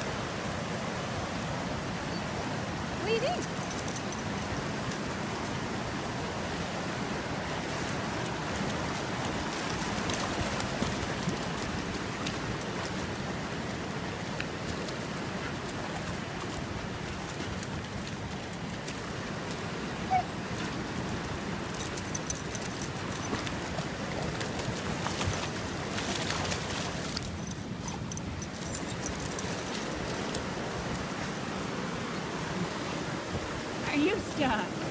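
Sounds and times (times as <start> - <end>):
creek water rushing: 0.0 - 34.9
dog collar tags jingling: 3.1 - 5.0, 21.6 - 23.7, 27.1 - 31.4.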